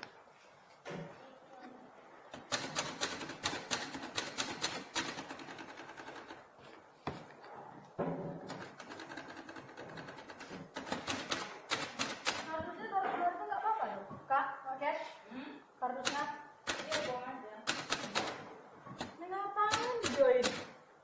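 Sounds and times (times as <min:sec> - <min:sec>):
typewriter keystrokes clattering: 0:02.4 - 0:06.4, 0:08.5 - 0:12.6, 0:16.0 - 0:20.8.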